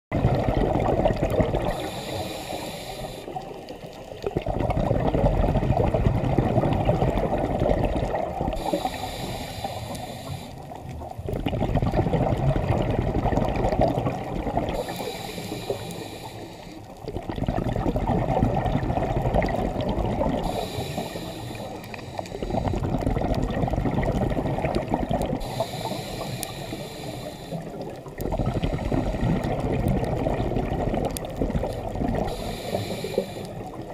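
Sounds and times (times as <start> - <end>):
bubbling exhaled air: 0.1 - 33.9
diver breathing through regulator: 1.6 - 3.8, 8.5 - 10.8, 14.7 - 17.0, 20.3 - 23.0, 25.4 - 29.6, 32.2 - 33.9.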